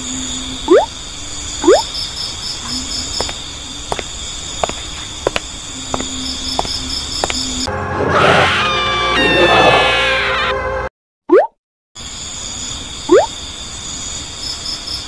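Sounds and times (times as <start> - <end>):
crickets chirping: 0.0 - 7.8, 12.0 - 15.0.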